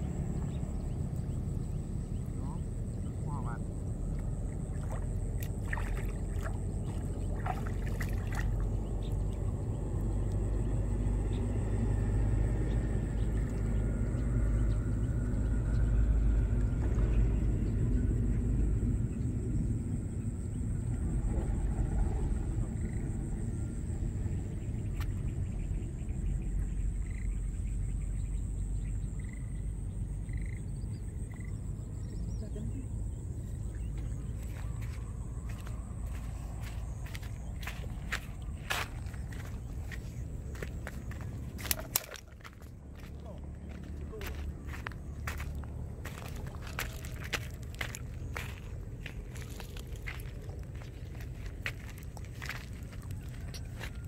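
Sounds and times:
steady low rumble: 0.0 - 54.0
water splashing and dripping: 4.2 - 9.6, 36.0 - 43.1.

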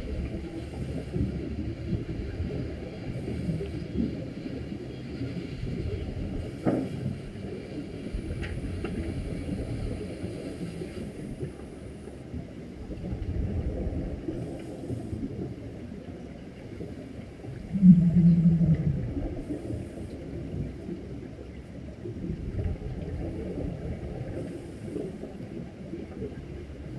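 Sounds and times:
muffled underwater rumble: 0.0 - 26.9
faint clicks: 8.2 - 9.2
scuba regulator bubbles rushing: 17.5 - 20.7.

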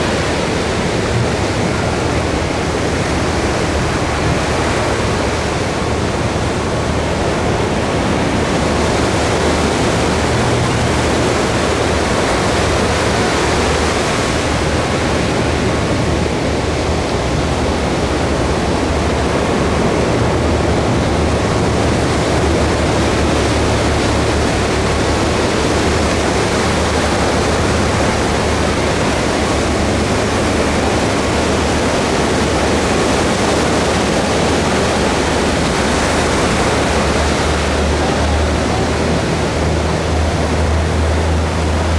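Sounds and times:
ocean surf breaking: 0.0 - 41.9.

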